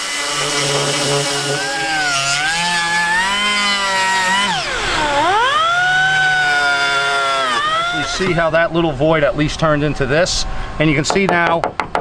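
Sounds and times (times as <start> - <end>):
angle grinder sanding: 0.0 - 8.6.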